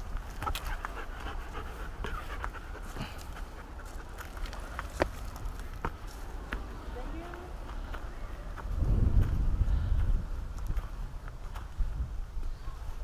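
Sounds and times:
footsteps on leaf-littered trail: 0.0 - 13.0
dog panting: 0.2 - 5.1.

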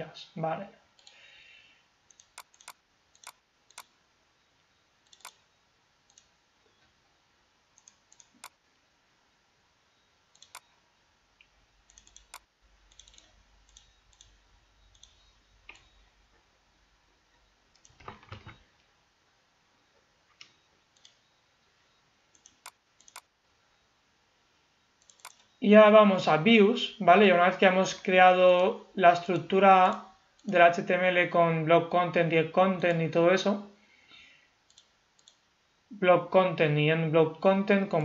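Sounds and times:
computer mouse clicks: 2.1 - 3.9, 5.0 - 5.5, 6.1 - 6.3, 7.8 - 8.6, 10.3 - 10.7, 11.9 - 16.0, 17.7 - 18.6, 20.3 - 21.2, 22.3 - 23.3, 25.0 - 25.5, 34.7 - 35.4
soft ticks: 34.7 - 35.4.

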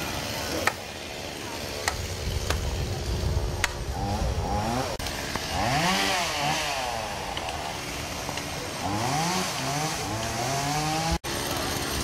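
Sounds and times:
chainsaw engine revving: 0.0 - 12.0.

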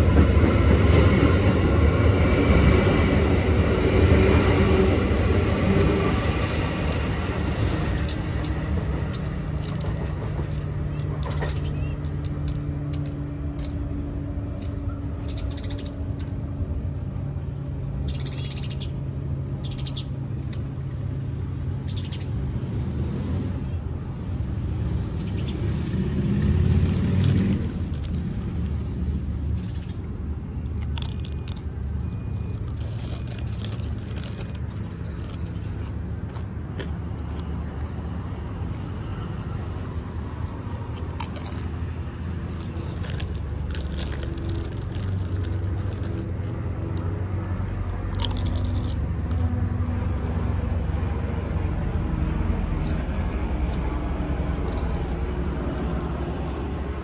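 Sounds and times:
chips crunching and crackling: 9.1 - 13.8, 26.3 - 28.8, 29.8 - 38.1, 40.8 - 49.5, 52.8 - 53.8, 54.6 - 57.0.

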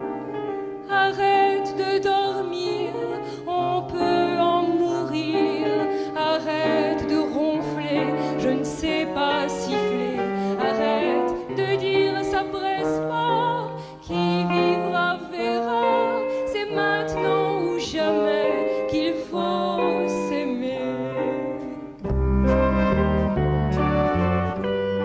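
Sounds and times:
woman singing with vibrato: 0.8 - 22.0
band playing: 20.8 - 25.0
low bass line: 22.0 - 25.0.

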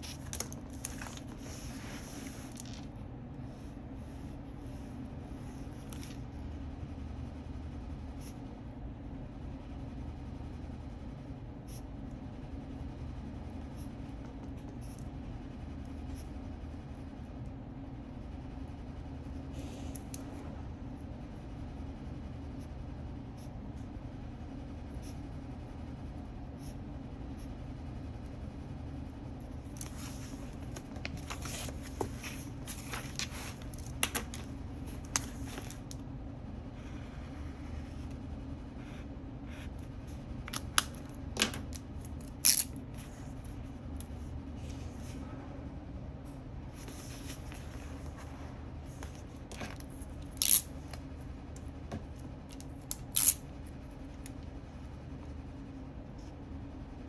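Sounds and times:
paper rustling: 0.0 - 2.9, 29.7 - 35.9
steady low hum: 0.0 - 57.0.

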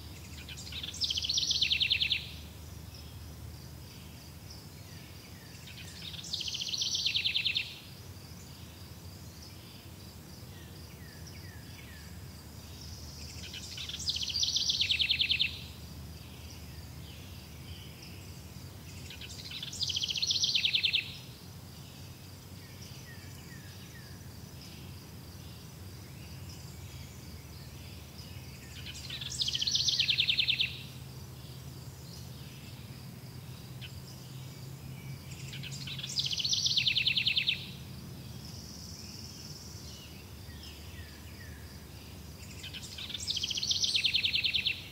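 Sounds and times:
bird singing fast trill: 0.0 - 3.2, 4.9 - 7.9, 12.8 - 18.3, 18.9 - 21.3, 26.2 - 32.8, 33.8 - 44.9.

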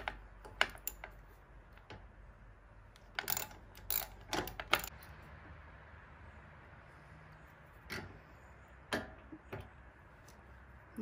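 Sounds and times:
metal hardware clinking: 0.0 - 2.0, 3.0 - 5.1.

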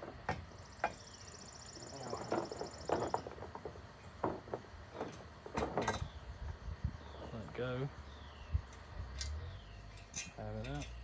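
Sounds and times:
metal parts clicking and knocking: 9.2 - 11.0.

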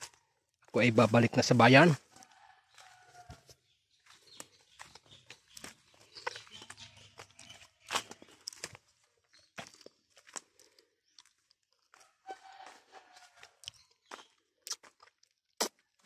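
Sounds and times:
footsteps crunching dry leaves: 2.7 - 3.5, 4.1 - 10.5.

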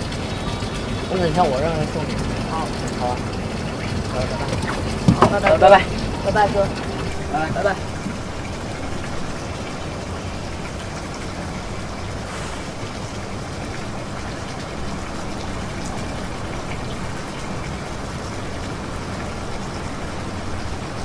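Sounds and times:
low hum: 0.0 - 12.2.

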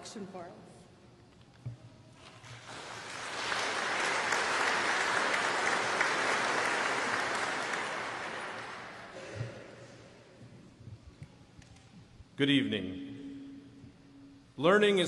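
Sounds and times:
audience applauding: 2.5 - 9.2.

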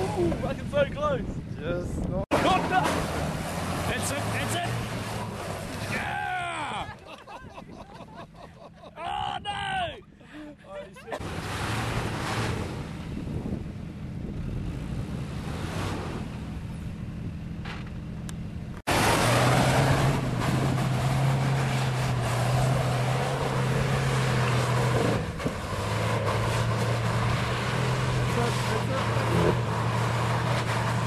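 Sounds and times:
off-road vehicle engine running: 0.0 - 7.0, 11.1 - 31.0
wind noise on microphone: 12.5 - 15.4.

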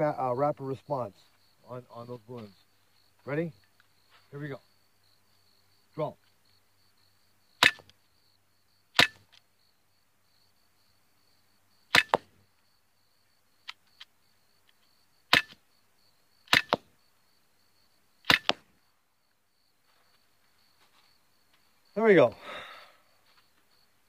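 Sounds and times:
air pistol cracks: 18.3 - 18.6.

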